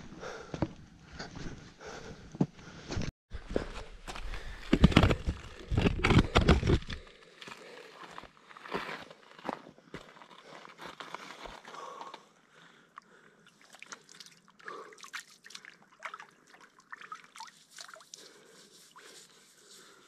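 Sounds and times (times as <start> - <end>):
water splashing and dripping: 13.4 - 19.1.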